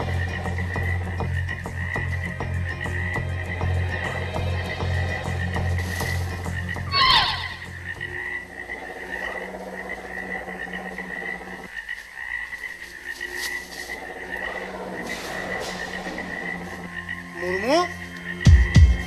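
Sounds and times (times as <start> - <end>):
soft low background music: 0.0 - 19.0
pulsing high animal trill: 3.6 - 11.8
sharp falling cry: 6.9 - 7.7.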